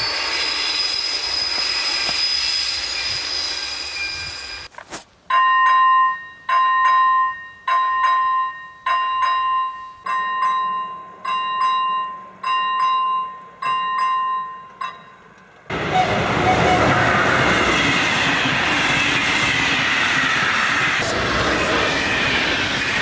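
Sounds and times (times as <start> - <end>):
passing train rushing: 0.0 - 4.7, 15.2 - 23.0
level crossing bell ringing: 5.3 - 15.4.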